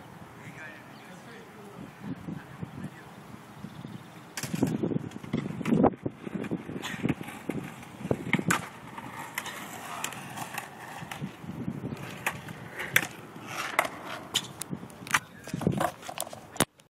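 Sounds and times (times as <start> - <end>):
skateboard wheels rolling on concrete: 0.0 - 16.9.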